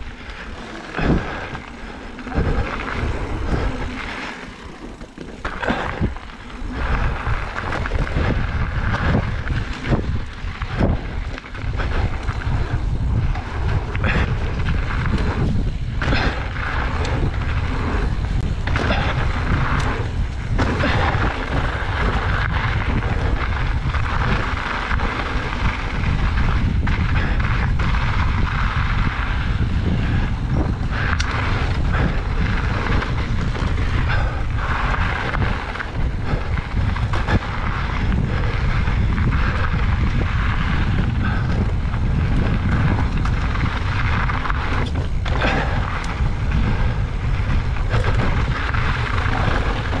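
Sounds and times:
bike knocks and rattles: 0:00.0 - 0:50.0
tyre noise on dirt: 0:00.0 - 0:50.0
wind buffeting microphone: 0:00.0 - 0:50.0.

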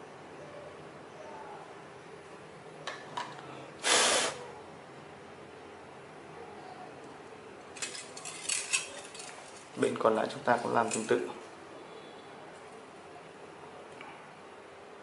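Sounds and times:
short puff of blown air: 0:03.8 - 0:04.5.

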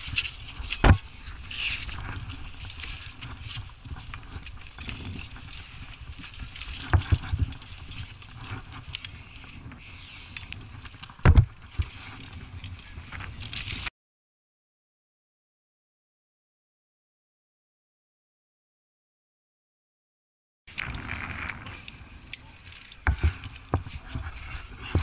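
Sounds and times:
climbing gear clinking on rock: 0:00.0 - 0:13.9, 0:20.7 - 0:25.0.

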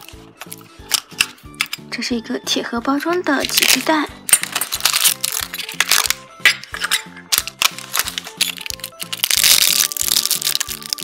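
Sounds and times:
plastic packets crinkling: 0:03.4 - 0:11.0.

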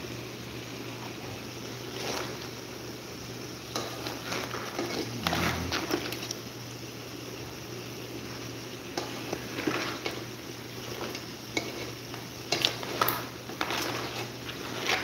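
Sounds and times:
pan sizzling: 0:00.0 - 0:15.0
shells scraping in a pot: 0:03.7 - 0:06.4, 0:09.0 - 0:15.0.

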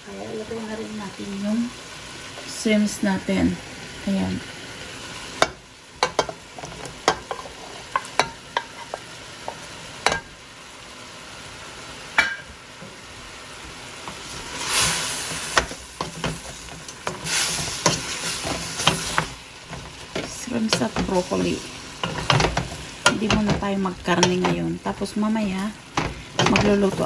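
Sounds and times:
food sizzling in a pan: 0:00.0 - 0:27.0
wooden spoon scraping a pan: 0:06.0 - 0:10.2, 0:13.6 - 0:27.0.

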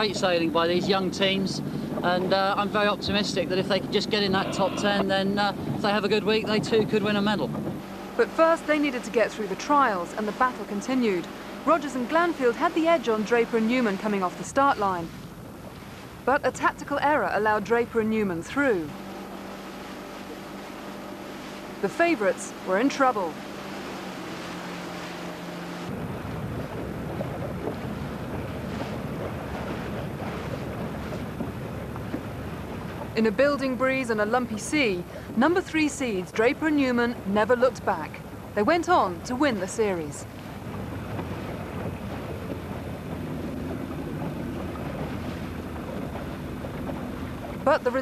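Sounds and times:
choppy sea water slapping: 0:00.0 - 0:48.0
wind buffeting microphone: 0:00.0 - 0:48.0.

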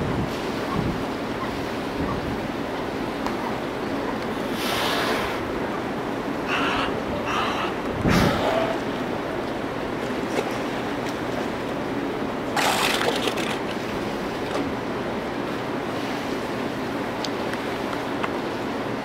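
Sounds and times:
wind noise: 0:00.0 - 0:02.7, 0:06.7 - 0:08.8
pool water washing: 0:00.0 - 0:19.0
water splash: 0:12.5 - 0:14.7.

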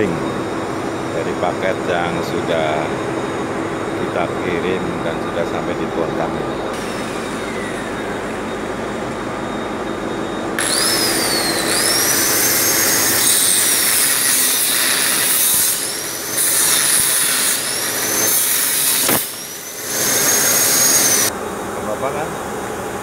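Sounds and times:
steady background hum: 0:00.0 - 0:23.0
angle grinder cutting metal: 0:06.7 - 0:08.5, 0:10.6 - 0:21.3.

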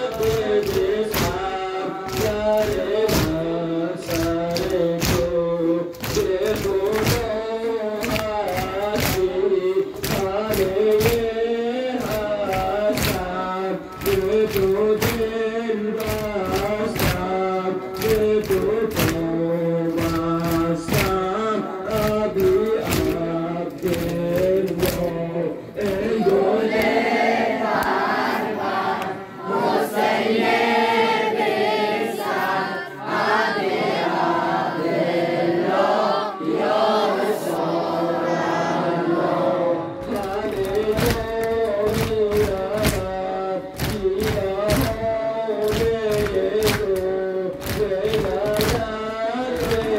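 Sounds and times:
men chanting in unison: 0:00.0 - 0:49.9
chest-beating slaps: 0:04.1 - 0:07.4.

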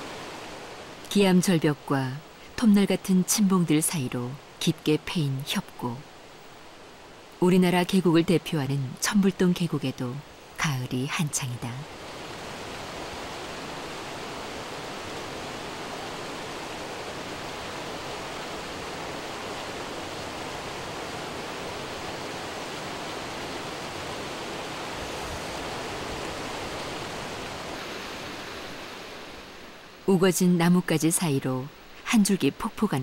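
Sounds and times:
stream rushing over rocks: 0:00.0 - 0:04.6, 0:11.9 - 0:30.0.

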